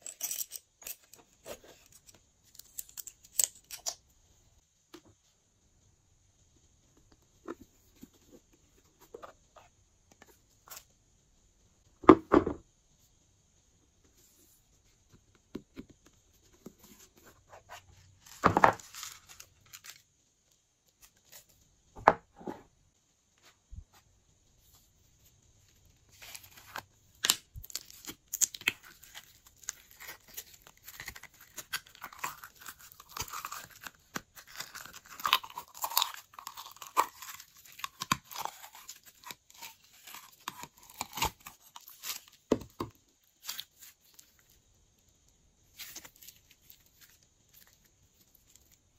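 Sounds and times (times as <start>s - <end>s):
slime squishing and crackling: 27.2s - 42.3s.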